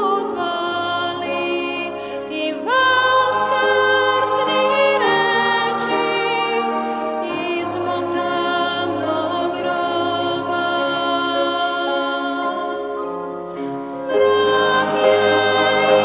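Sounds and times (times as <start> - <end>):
person singing worship song: 0.0 - 16.0
soft sustained backing music: 0.0 - 16.0.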